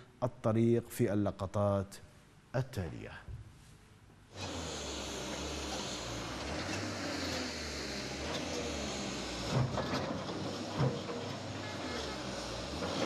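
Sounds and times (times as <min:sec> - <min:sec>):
diesel engine running: 0:04.4 - 0:13.0.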